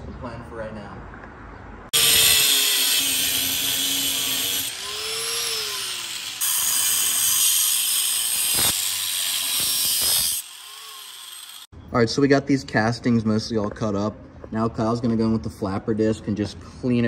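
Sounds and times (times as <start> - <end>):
angle grinder cutting steel: 2.0 - 11.7.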